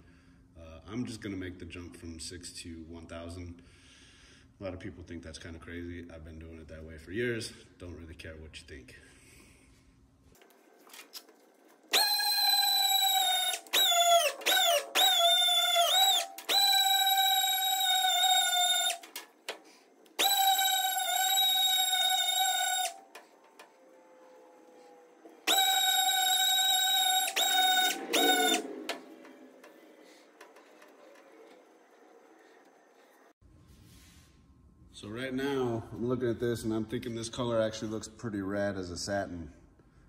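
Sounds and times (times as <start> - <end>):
pneumatic sander whining: 11.8 - 33.2.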